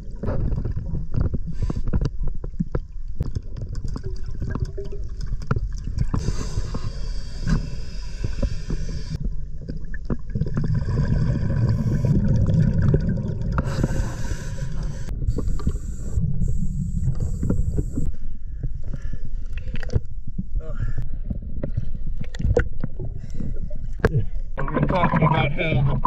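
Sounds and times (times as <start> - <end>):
bubbling exhaled air: 3.4 - 18.1
hissing regulator inhalation: 6.2 - 9.2, 11.5 - 12.4, 13.6 - 18.1.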